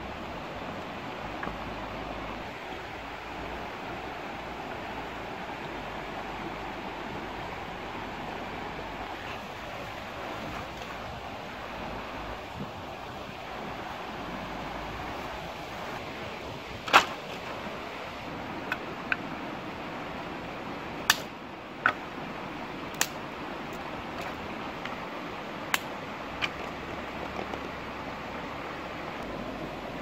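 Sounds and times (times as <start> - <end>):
stream rushing over rocks: 0.0 - 30.0
dry sticks cracking: 22.9 - 23.2, 25.7 - 26.8.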